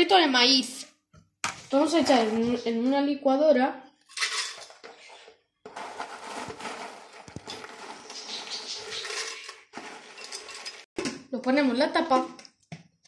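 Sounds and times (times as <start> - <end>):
corn chips rustling and crackling: 5.7 - 10.8.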